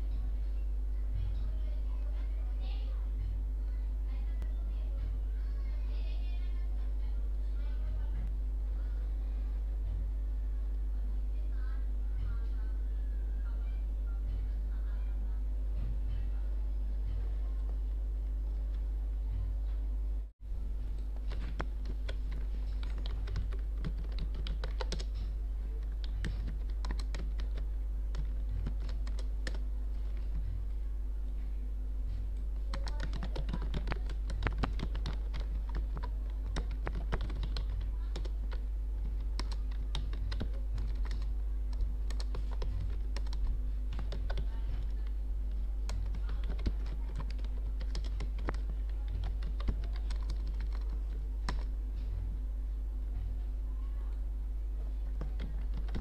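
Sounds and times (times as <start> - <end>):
low hum: 0.0 - 56.0
keyboard typing clicks: 21.0 - 30.4, 32.7 - 45.1, 45.8 - 51.7, 55.2 - 56.0.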